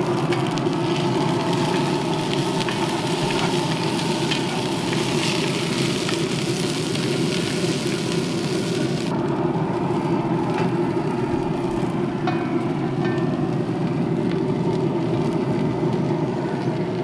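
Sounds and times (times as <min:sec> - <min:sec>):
potatoes sizzling in a pot: 0:00.0 - 0:09.2
steady low hum: 0:00.0 - 0:17.0.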